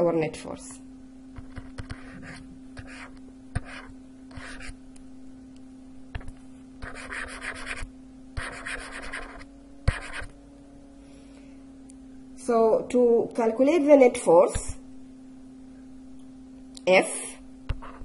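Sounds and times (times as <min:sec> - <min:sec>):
steady low hum: 0:00.0 - 0:18.0
stylus scratching on tablet: 0:01.4 - 0:04.8, 0:06.2 - 0:10.3, 0:17.7 - 0:18.0.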